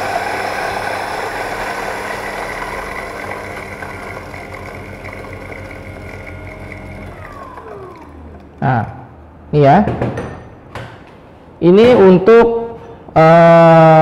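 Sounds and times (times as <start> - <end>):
coffee grinder grinding beans: 0.0 - 8.6.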